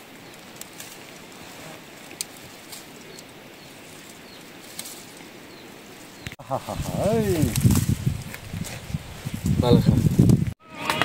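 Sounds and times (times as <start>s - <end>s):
rustling leaves picked by hand: 0.0s - 10.6s
steady outdoor hiss: 0.0s - 11.0s
stems snapping: 0.3s - 1.4s, 2.0s - 3.3s, 3.9s - 5.2s, 7.3s - 8.8s.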